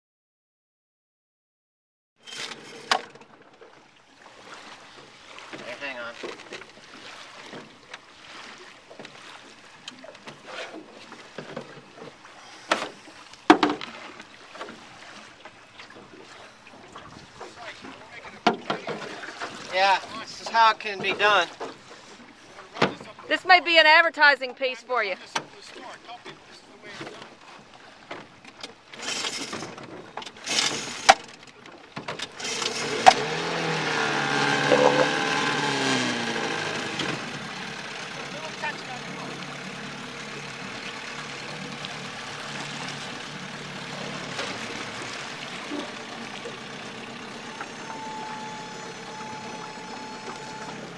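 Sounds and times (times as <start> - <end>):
engine starting and running: 2.2 - 3.6, 28.4 - 50.9
boat knocks and clunks: 2.4 - 50.9
water slapping against boat: 2.6 - 50.9
knocks and sharp clicks: 34.7 - 35.2.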